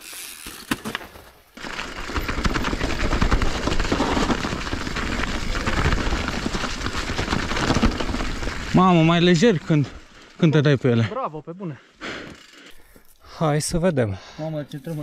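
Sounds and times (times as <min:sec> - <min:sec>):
bike tyres crackling over leaves: 0:00.0 - 0:11.0.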